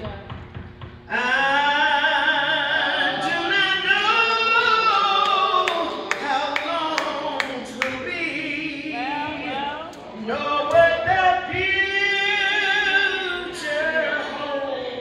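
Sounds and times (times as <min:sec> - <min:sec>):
woman singing with vibrato: 0:01.1 - 0:15.0
sharp claps: 0:04.9 - 0:08.0.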